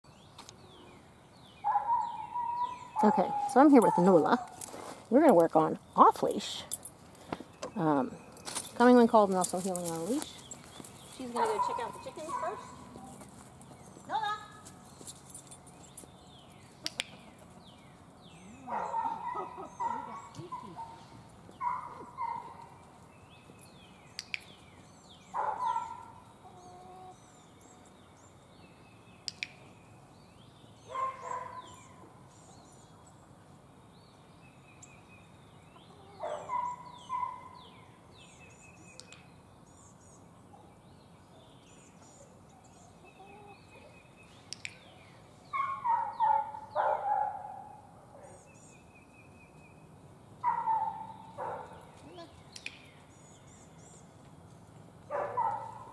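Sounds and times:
small birds chirping: 0.0s - 55.9s
chickens and rooster calling: 25.4s - 27.3s.

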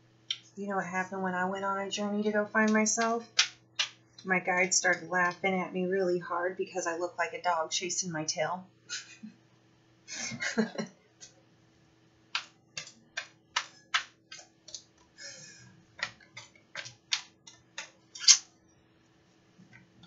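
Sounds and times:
person laughing: 8.9s - 9.3s, 10.1s - 10.9s
cards being shuffled: 12.4s - 14.9s, 16.0s - 18.4s.

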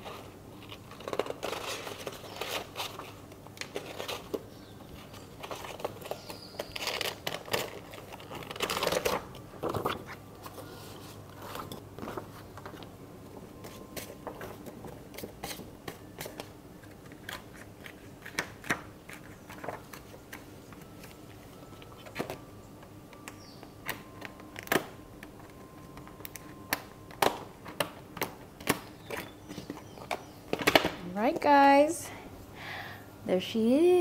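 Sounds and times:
paper rustling: 0.0s - 12.8s, 13.6s - 21.2s.

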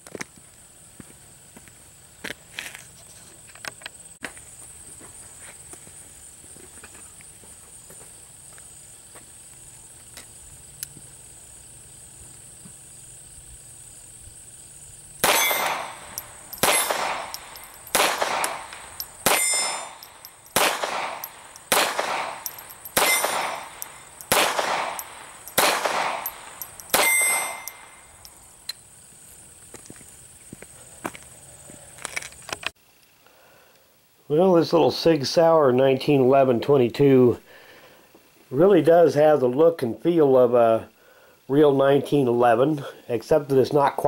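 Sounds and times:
pistol shots: 15.2s - 28.1s.

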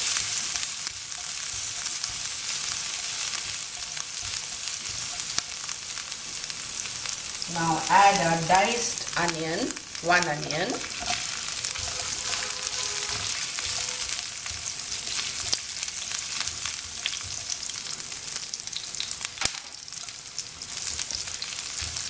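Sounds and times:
onion sizzling in hot oil: 0.0s - 22.0s
spatula scraping and tapping: 10.9s - 15.6s.

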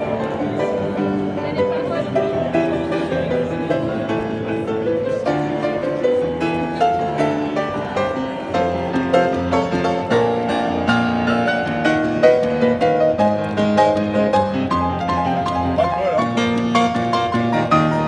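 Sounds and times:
grand piano playing: 0.0s - 18.0s.

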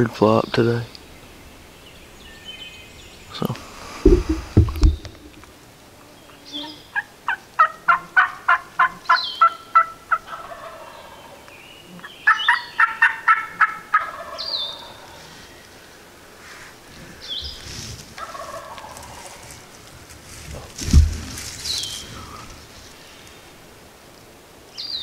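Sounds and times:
handling thumps: 4.0s - 5.5s, 20.5s - 21.7s
turkey yelping: 7.0s - 11.2s, 12.3s - 15.1s, 18.2s - 19.4s.

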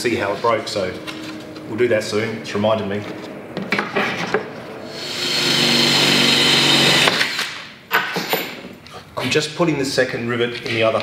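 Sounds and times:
cordless drill drilling metal: 4.9s - 7.5s.

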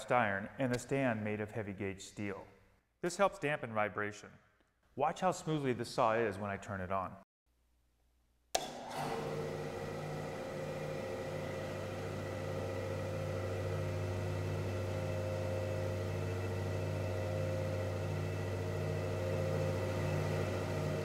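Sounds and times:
bandsaw motor humming: 8.6s - 21.0s.

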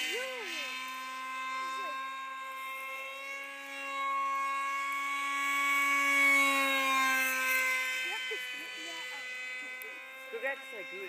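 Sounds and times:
model jet electric motor whine: 0.0s - 11.0s.

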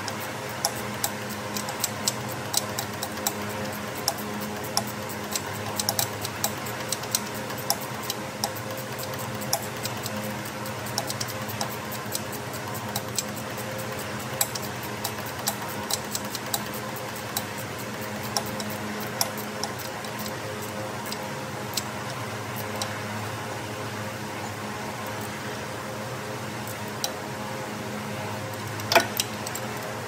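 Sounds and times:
hand tools clicking on metal: 0.0s - 20.4s
steady hum: 0.0s - 30.0s.

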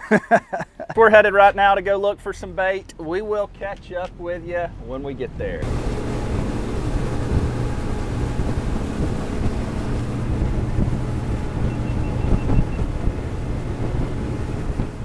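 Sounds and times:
wind buffeting microphone: 4.7s - 15.0s
outboard motor drone: 5.6s - 15.0s.

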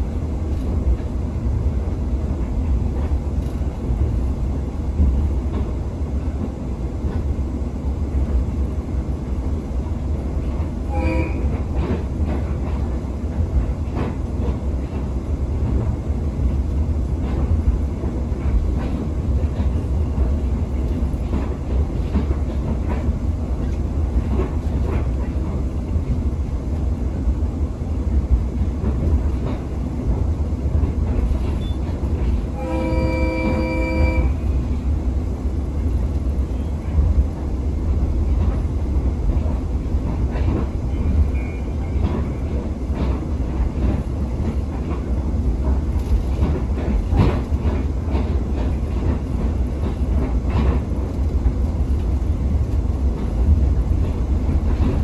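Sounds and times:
train carriage rumble: 0.0s - 55.0s
brief tone: 31.6s - 31.8s, 32.7s - 34.4s, 41.3s - 41.8s.

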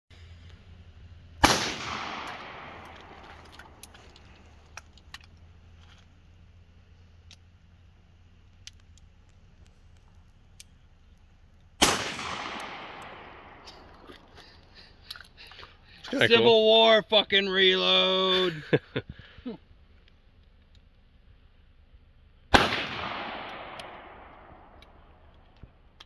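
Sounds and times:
gunshots with echo: 1.4s - 3.9s, 11.8s - 14.5s, 22.5s - 25.0s
faint clicks: 8.4s - 11.7s.

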